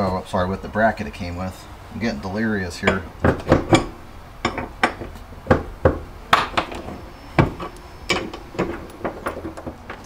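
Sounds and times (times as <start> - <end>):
bolts and bracket clicking and knocking: 2.8 - 10.0.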